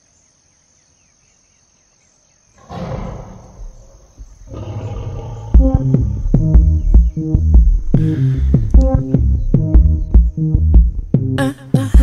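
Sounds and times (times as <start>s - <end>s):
faint chirping: 0.0s - 8.2s
electronic beat: 5.6s - 12.0s.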